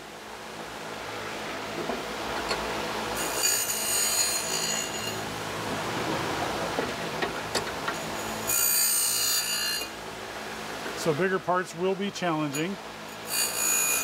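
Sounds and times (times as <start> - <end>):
high-pitched metal grinding: 2.4 - 5.4, 7.5 - 10.0, 12.5 - 14.0
surface grinder running: 3.2 - 6.6.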